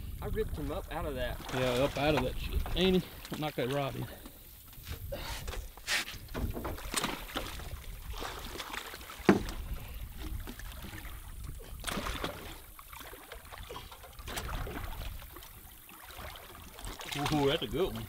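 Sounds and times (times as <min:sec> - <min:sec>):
water sloshing: 0:00.0 - 0:18.0
knocks on boat: 0:06.3 - 0:07.3, 0:09.2 - 0:09.8
fish splashing at the surface: 0:06.8 - 0:17.6.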